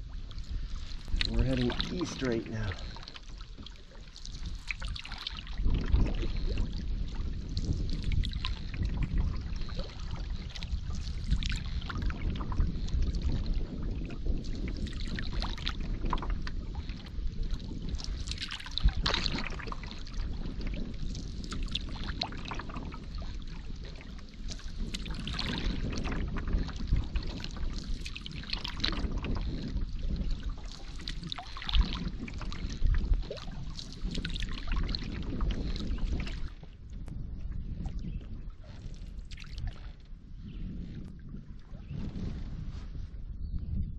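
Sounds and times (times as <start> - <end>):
paddle splashing in water: 0.0 - 36.8, 37.7 - 40.0.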